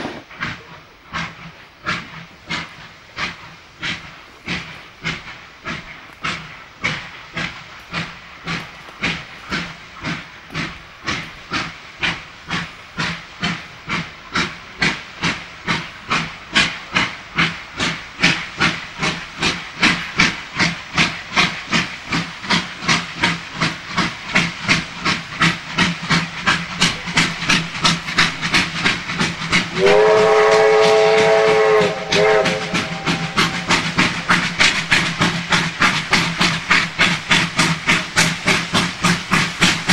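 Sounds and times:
steam locomotive chuffing: 0.0 - 39.9
steam whistle: 29.7 - 33.7.

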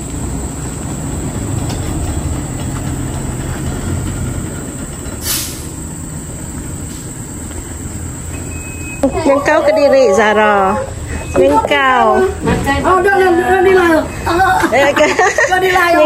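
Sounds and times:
lorry engine rumbling: 0.0 - 16.0
air hiss: 5.2 - 8.4.

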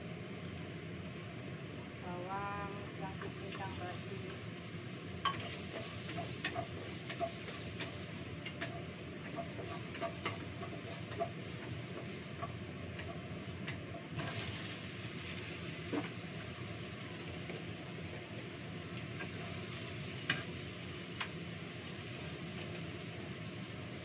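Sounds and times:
food sizzling in a frying pan: 3.1 - 24.0
spatula knocking and scraping pan: 5.2 - 14.5.

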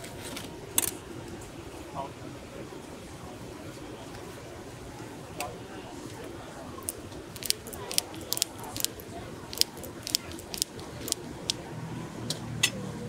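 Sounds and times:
scissors snipping: 7.4 - 11.6.

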